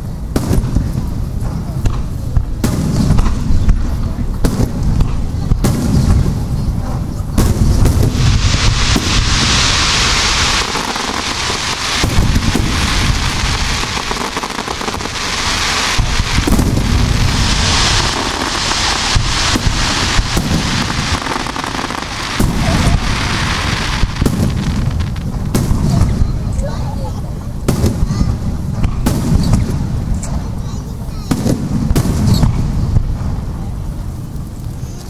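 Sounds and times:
sharp firework reports: 0.0s - 34.6s
firework crackle: 0.0s - 35.0s
deep booms: 7.3s - 26.5s
firework shells bursting: 7.4s - 26.2s.

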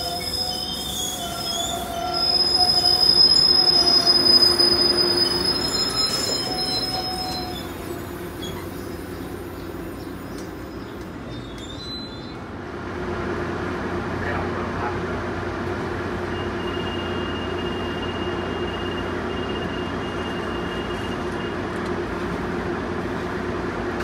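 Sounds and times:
train wheels squealing: 0.0s - 12.4s, 16.3s - 21.6s
train cars rumbling: 0.0s - 24.0s.

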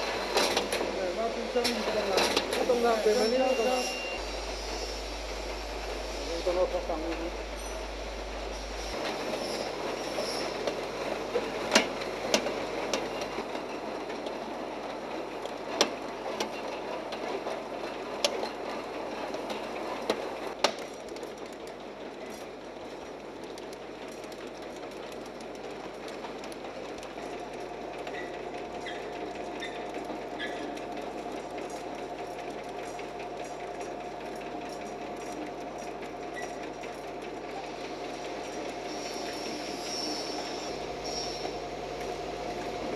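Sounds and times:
steady machine whine: 2.7s - 12.0s.

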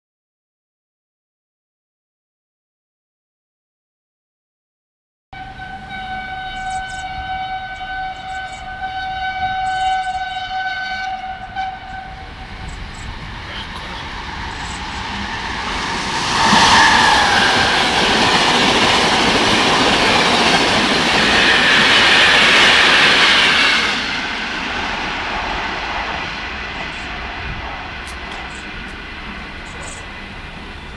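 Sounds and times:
locomotive horn: 5.4s - 12.7s
train wheels rushing on rails: 5.4s - 30.9s.

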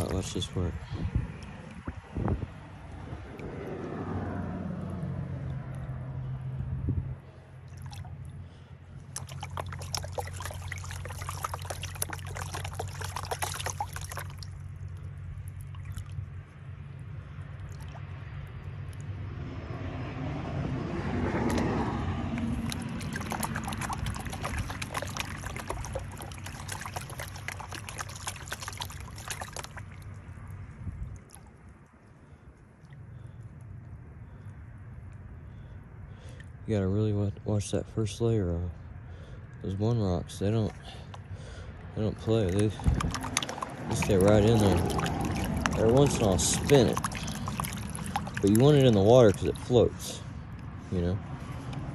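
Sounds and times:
water sloshing in plastic pan: 7.7s - 16.4s, 21.2s - 31.4s, 40.5s - 50.2s.

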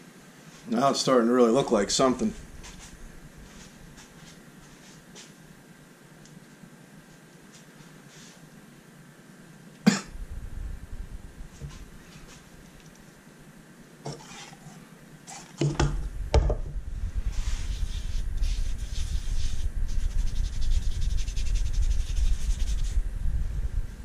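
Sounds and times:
low rumble on bench: 10.1s - 12.5s, 15.8s - 24.0s
light knocks on wood: 15.6s - 16.8s.

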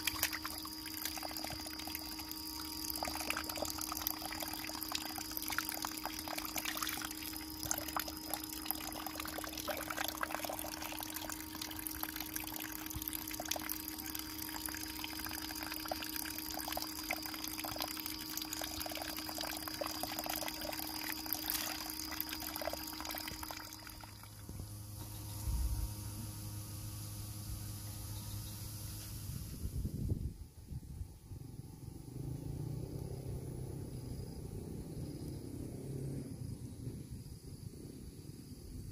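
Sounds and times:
water splashing and pouring: 0.0s - 24.5s
steady hum: 0.0s - 35.1s.

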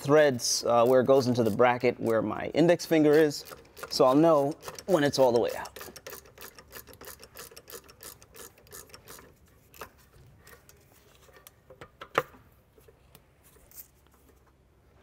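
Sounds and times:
ratchet wrench clicking: 2.8s - 9.9s
bolt scraping: 2.9s - 13.0s.

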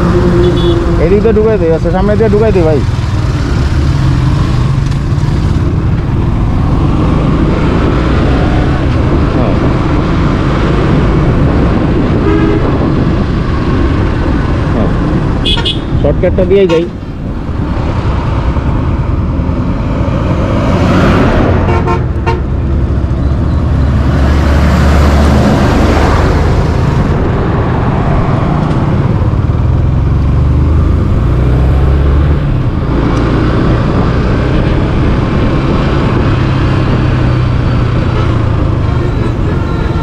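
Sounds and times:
wind rushing over microphone: 0.0s - 40.0s
vehicle horn tooting: 0.1s - 1.0s, 12.2s - 12.8s, 15.4s - 16.0s, 21.7s - 22.5s, 38.2s - 40.0s.

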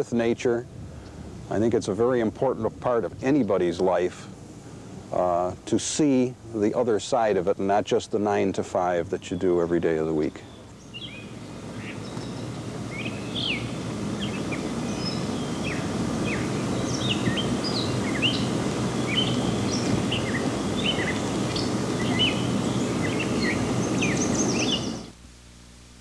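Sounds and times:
small birds chirping: 9.1s - 25.2s
low background rumble: 10.6s - 26.0s.

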